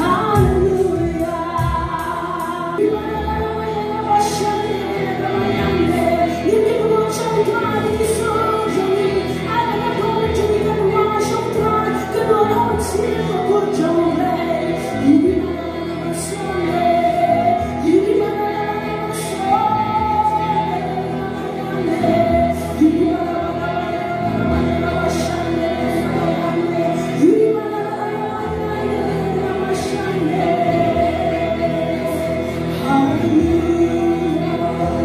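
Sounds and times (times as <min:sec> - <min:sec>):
drums: 0:00.0 - 0:02.8
backing singers: 0:00.0 - 0:35.0
woman singing lead vocal: 0:00.0 - 0:35.0.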